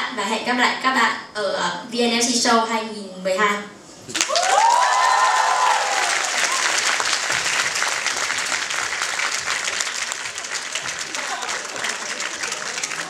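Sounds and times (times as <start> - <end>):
audience applauding: 4.1 - 13.0
whooping cheers: 4.2 - 7.2.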